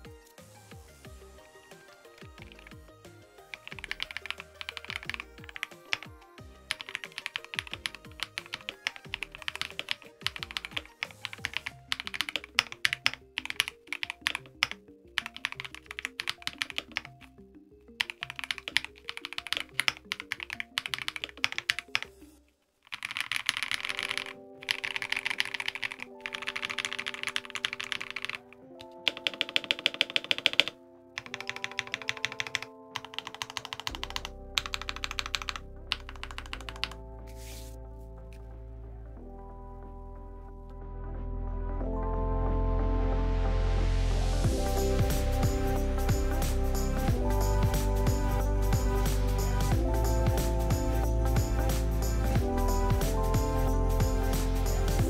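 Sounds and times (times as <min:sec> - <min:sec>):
mechanical keyboard typing: 0:02.0 - 0:17.3, 0:18.0 - 0:22.2, 0:22.8 - 0:37.0.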